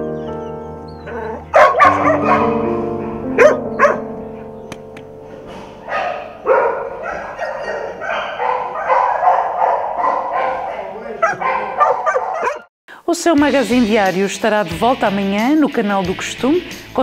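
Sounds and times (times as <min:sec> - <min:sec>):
soft background music: 0:00.0 - 0:06.9, 0:13.1 - 0:17.0
dogs barking: 0:01.0 - 0:04.5, 0:05.5 - 0:12.7.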